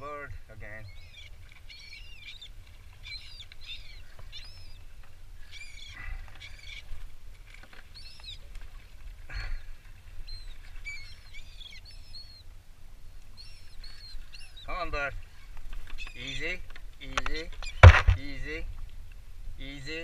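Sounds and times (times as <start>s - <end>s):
gulls calling: 0.0s - 7.0s, 9.3s - 12.5s, 13.4s - 18.6s.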